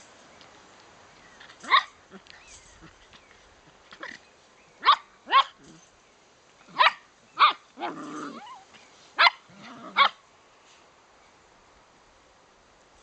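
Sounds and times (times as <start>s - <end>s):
puppy growling: 7.8s - 8.6s.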